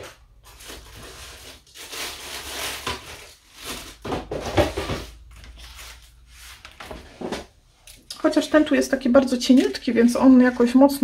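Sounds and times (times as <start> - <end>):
paper and cardboard rustling: 0.0 - 7.5.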